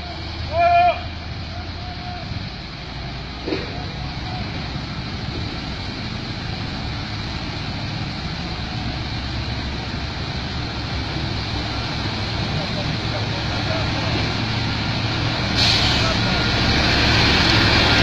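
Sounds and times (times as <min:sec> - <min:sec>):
heavy truck engine running: 0:00.0 - 0:18.0.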